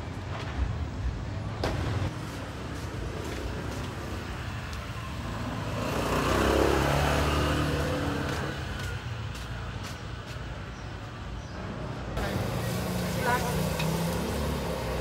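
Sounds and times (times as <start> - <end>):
street noise: 0.0 - 15.0
vehicle engine passing: 5.3 - 8.8, 12.2 - 15.0.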